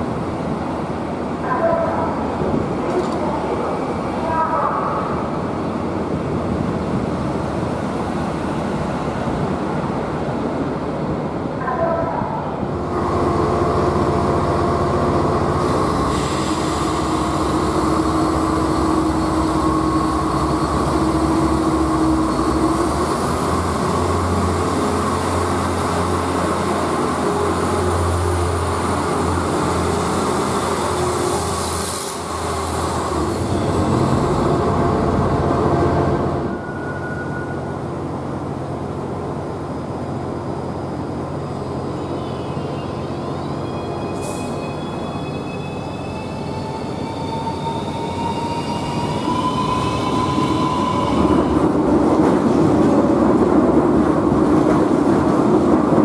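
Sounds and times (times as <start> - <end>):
train humming at standstill: 0.0 - 56.0
diesel train engine working: 12.6 - 56.0.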